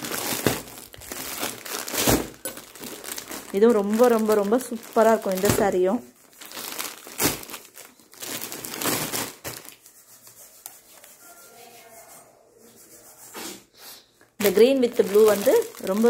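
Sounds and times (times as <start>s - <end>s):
plastic packaging crinkling: 0.0s - 10.0s, 14.4s - 16.0s.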